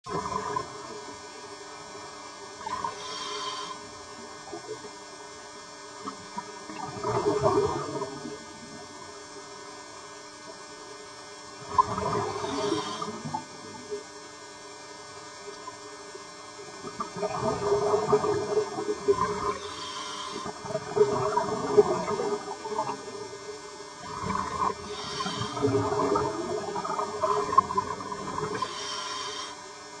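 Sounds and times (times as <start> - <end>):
gurgling exhaust bubbles: 0.1 - 0.9, 6.1 - 8.9, 11.6 - 13.6, 16.8 - 19.6, 20.4 - 23.4, 24.0 - 28.6
diver breathing through regulator: 2.9 - 3.9, 12.3 - 13.3, 19.5 - 20.6, 24.8 - 25.8, 28.4 - 29.6.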